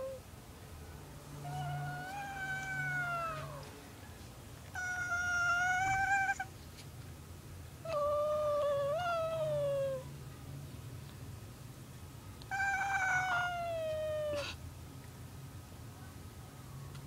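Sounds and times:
cat meowing: 1.4 - 3.7, 4.7 - 6.5, 7.9 - 10.1, 12.5 - 14.6.

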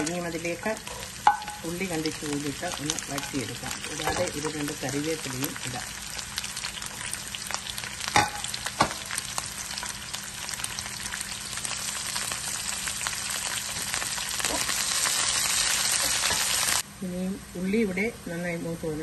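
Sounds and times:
onion sizzling in hot oil: 0.0 - 16.8.

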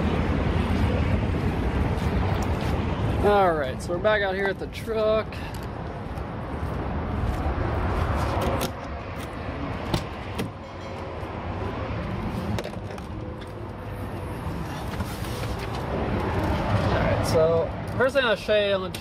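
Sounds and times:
low rumbling noise: 0.0 - 4.7.

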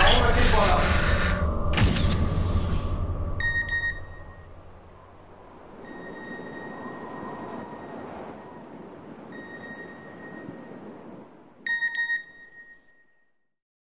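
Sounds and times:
high electronic tone: 0.0 - 5.0
bright beeps: 3.4 - 4.5.

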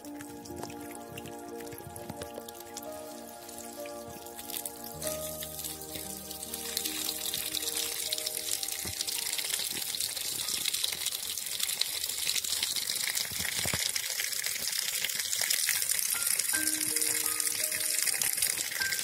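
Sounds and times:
soft background music: 0.0 - 11.1, 16.1 - 19.0
water gushing from pipe: 0.0 - 19.0
water splashing into pool: 0.0 - 19.0.

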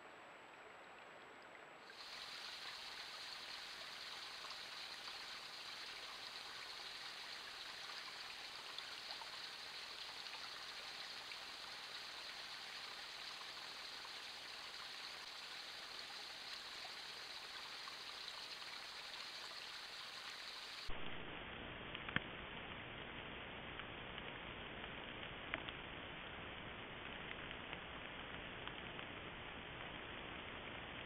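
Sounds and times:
creek water rushing: 0.0 - 20.9.

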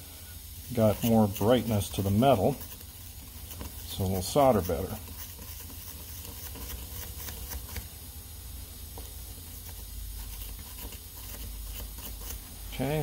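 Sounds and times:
scratchy rubbing on metal: 0.7 - 7.9, 9.4 - 13.0.

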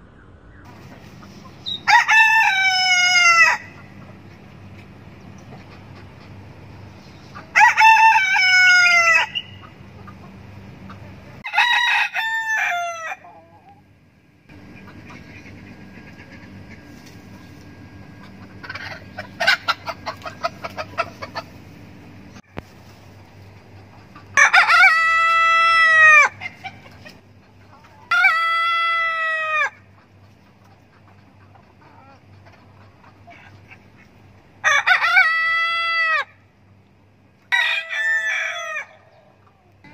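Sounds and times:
rooster crowing: 1.7 - 3.8, 7.5 - 9.6, 11.4 - 13.5, 24.4 - 26.4, 28.1 - 29.8, 34.6 - 36.4, 37.5 - 39.2.

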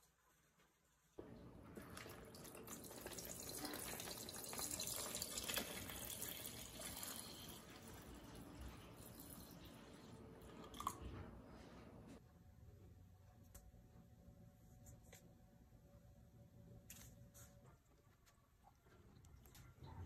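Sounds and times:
water running and splashing: 1.8 - 9.9.

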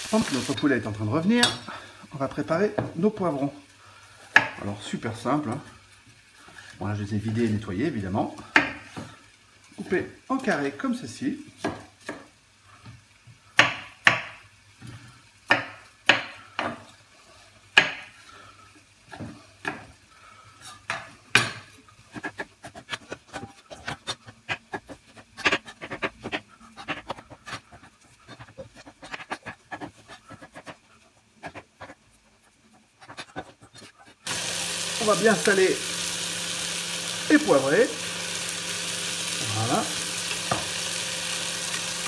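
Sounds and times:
knife chopping on wooden board: 15.5 - 16.8, 40.4 - 40.8.

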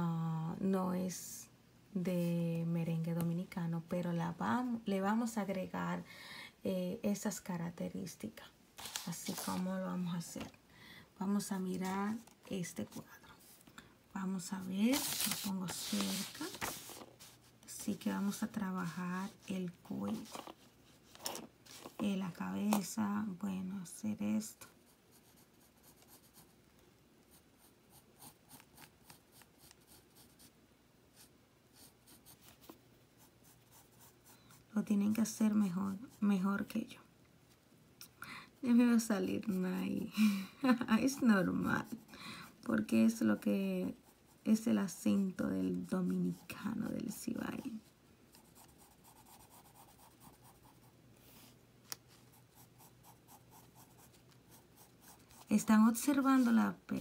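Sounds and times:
pencil sketching on paper: 14.9 - 17.4, 24.9 - 26.5, 27.3 - 30.5, 31.2 - 34.6, 48.4 - 51.5, 52.3 - 55.7.

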